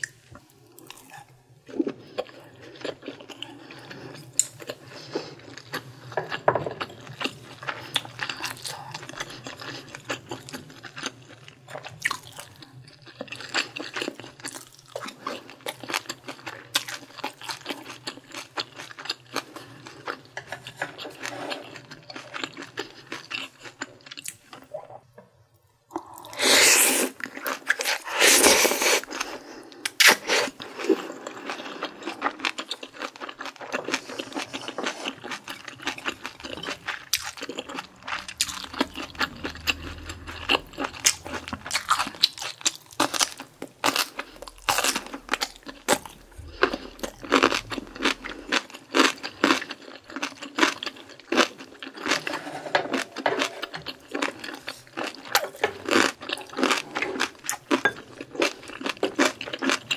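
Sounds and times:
slurping broth: 25.9s - 31.1s, 52.0s - 55.7s
crunchy chewing: 26.0s - 59.9s.

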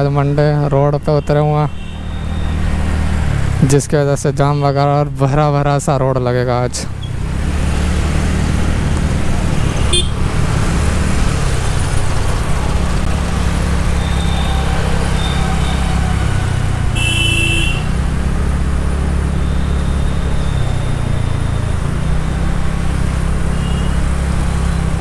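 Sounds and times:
wind and scooter engine rumble: 6.5s - 25.0s
vehicle horn honking: 9.6s - 10.2s, 14.0s - 18.0s, 23.6s - 24.0s.

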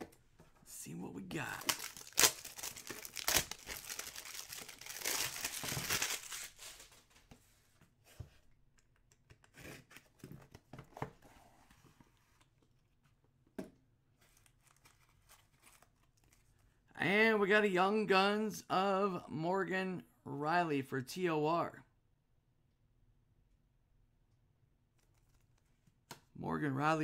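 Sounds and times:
shrink-wrap tearing and crinkling: 1.4s - 7.0s
cards rustling and tapping: 1.6s - 6.9s.

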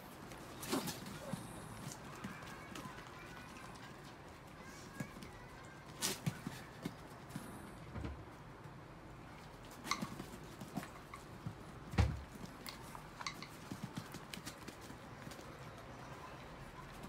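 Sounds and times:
dogs' light clicks and taps: 9.4s - 16.2s.

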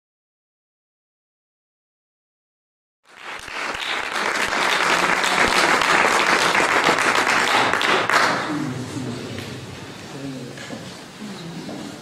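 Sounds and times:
audience applauding: 3.1s - 8.7s.

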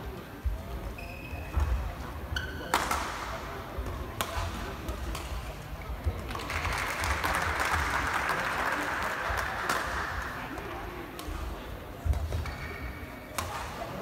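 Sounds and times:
racket hitting shuttlecock: 2.4s - 3.3s, 4.2s - 5.5s, 13.3s - 13.8s
spectators clapping and cheering: 6.3s - 10.4s.

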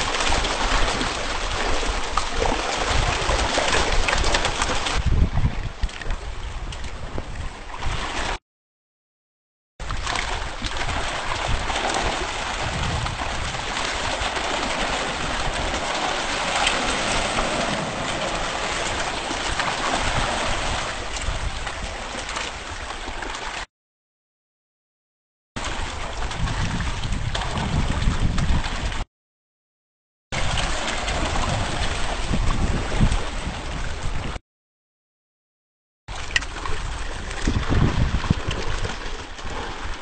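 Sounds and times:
water splashing from thrashing fish: 0.0s - 5.0s, 9.9s - 23.7s, 30.4s - 33.3s.

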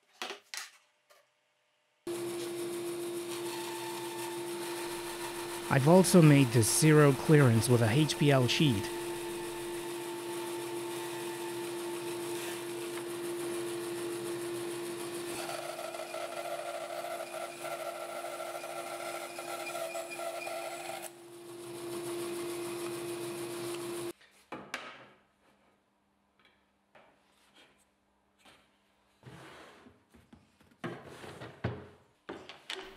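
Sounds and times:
band saw running: 2.1s - 24.1s
saw blade cutting wood: 2.1s - 24.1s.

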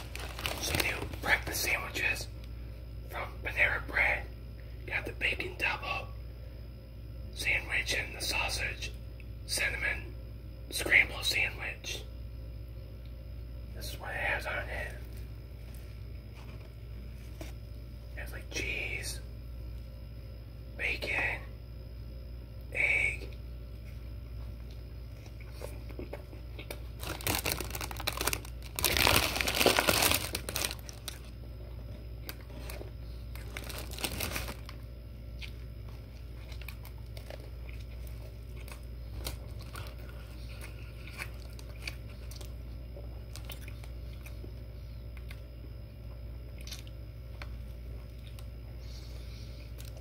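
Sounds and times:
paper bag crinkling: 0.0s - 1.9s, 27.0s - 31.3s, 33.4s - 34.8s
chewing sandwich: 24.5s - 50.0s.

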